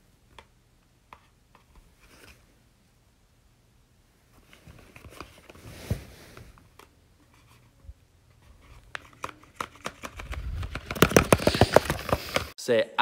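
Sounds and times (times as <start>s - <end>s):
rustling of paper and fabric: 8.4s - 12.6s.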